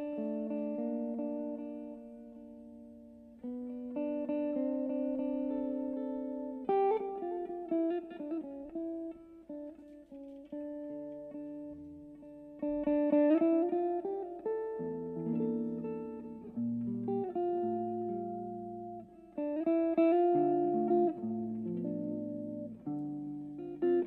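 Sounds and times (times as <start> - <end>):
jazz electric guitar: 0.0 - 24.0.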